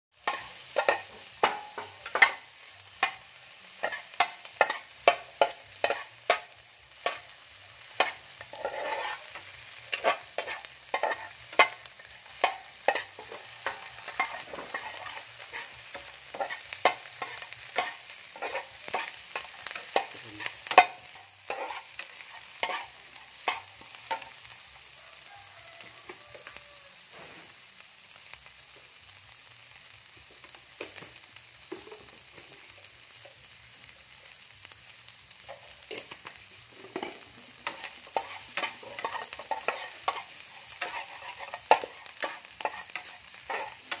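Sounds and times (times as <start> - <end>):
light sizzle: 0.1 - 44.0
metal spatula scraping pan: 3.8 - 24.4, 36.9 - 44.0.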